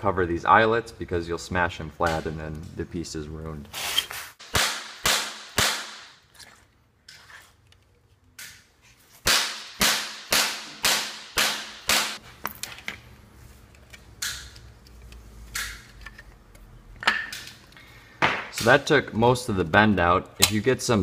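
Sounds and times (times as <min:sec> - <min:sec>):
hammer striking wood block: 0:09.2 - 0:12.2.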